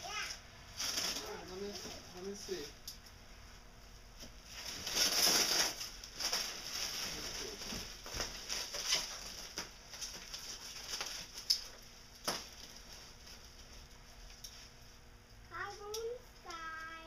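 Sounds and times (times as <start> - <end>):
bubble wrap and paper rustling: 0.1 - 2.8, 4.2 - 14.8.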